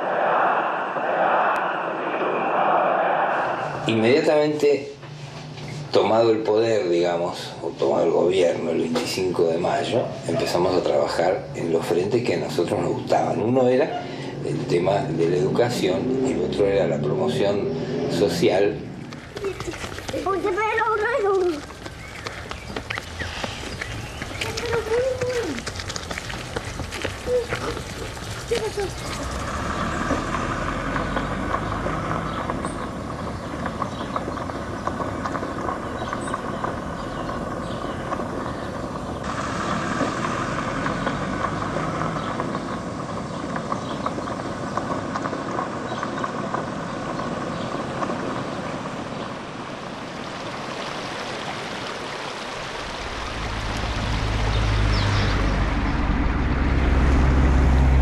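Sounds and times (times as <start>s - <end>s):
vehicle engine and tyre noise: 0.0s - 58.0s
gravel crackling under tyres: 3.8s - 58.0s
deep low rumble: 52.9s - 58.0s.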